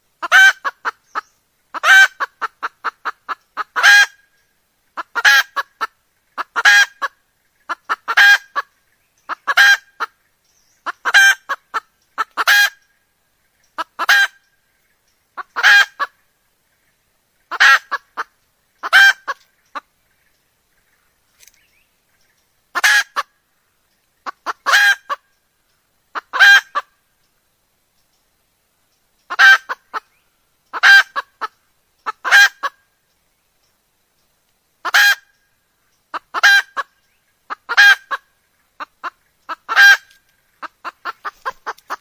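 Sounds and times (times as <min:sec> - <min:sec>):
hen cackling: 0:00.2 - 0:04.3, 0:05.0 - 0:08.7, 0:09.3 - 0:10.2, 0:10.8 - 0:12.9, 0:13.7 - 0:14.5, 0:15.3 - 0:16.2, 0:17.5 - 0:19.9, 0:22.7 - 0:23.4, 0:24.2 - 0:25.3, 0:26.1 - 0:27.0, 0:29.3 - 0:32.9, 0:34.8 - 0:35.4, 0:36.1 - 0:42.0.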